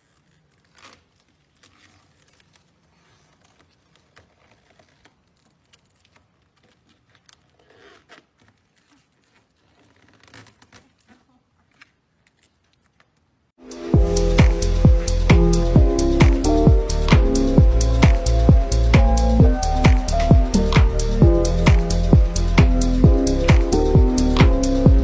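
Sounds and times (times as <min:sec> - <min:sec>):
vinyl film peeling off: 0:00.0 - 0:13.2.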